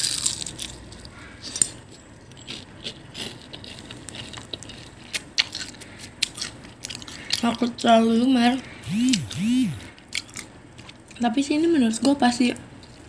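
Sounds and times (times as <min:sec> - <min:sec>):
crunching food: 0:00.0 - 0:07.6.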